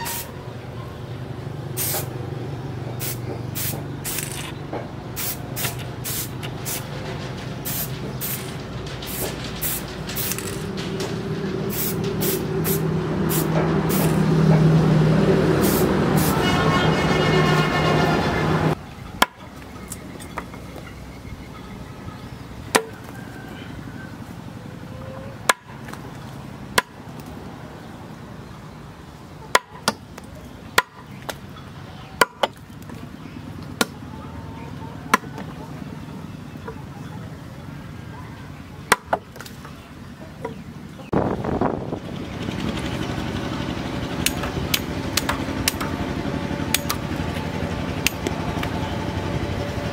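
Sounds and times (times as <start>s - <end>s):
cleaver chopping into wood: 38.9s - 39.2s.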